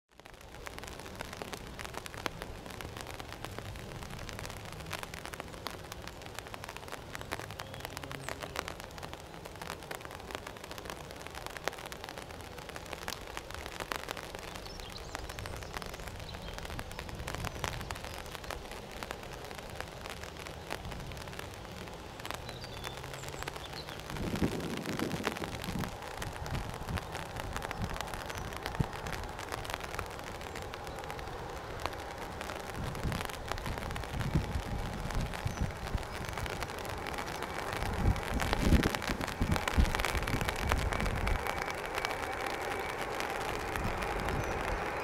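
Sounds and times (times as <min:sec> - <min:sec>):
rain falling: 0:00.1 - 0:45.0.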